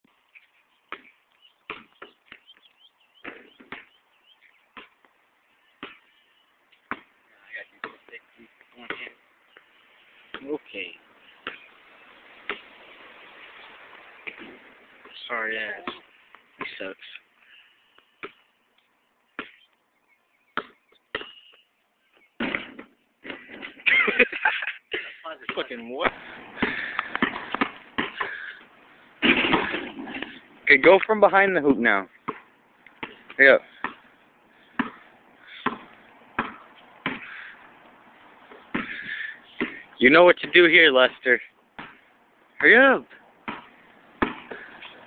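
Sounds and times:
birds chirping: 0:00.0 - 0:45.0
basketball bouncing on concrete: 0:00.9 - 0:02.5, 0:03.2 - 0:04.0, 0:04.8 - 0:05.0, 0:05.8 - 0:06.1, 0:06.9 - 0:07.1, 0:07.8 - 0:08.1, 0:10.3 - 0:10.5, 0:15.8 - 0:16.8, 0:19.4 - 0:19.6, 0:20.6 - 0:21.4, 0:26.6 - 0:28.4, 0:32.2 - 0:34.1, 0:34.7 - 0:37.5, 0:38.5 - 0:40.6, 0:41.8 - 0:42.1, 0:43.4 - 0:44.8
basketball hoop rattle: 0:29.2 - 0:30.4.

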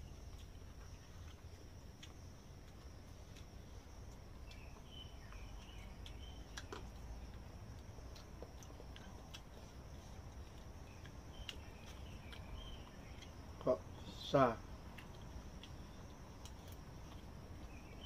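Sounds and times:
bird chirps: 0:04.4 - 0:07.0, 0:10.8 - 0:14.2, 0:17.6 - 0:18.0.

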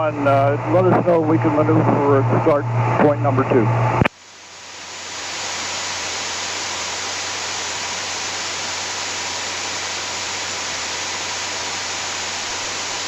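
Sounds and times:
faint low hum: 0:00.0 - 0:04.1
radio static hiss: 0:00.0 - 0:13.0.

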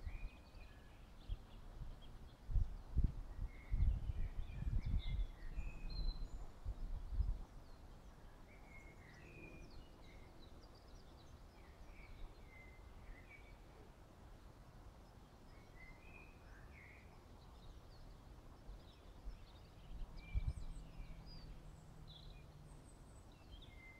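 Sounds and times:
small birds chirping: 0:00.0 - 0:23.9
wind buffeting microphone: 0:01.3 - 0:07.8, 0:19.3 - 0:21.6.

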